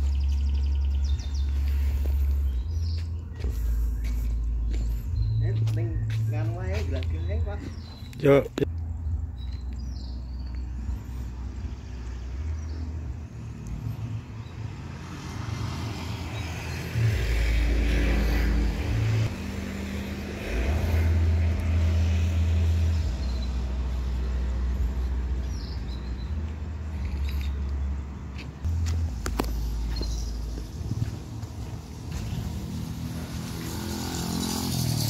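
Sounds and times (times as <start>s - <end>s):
deep bass tones from speakers: 0.0s - 13.3s, 20.4s - 31.2s.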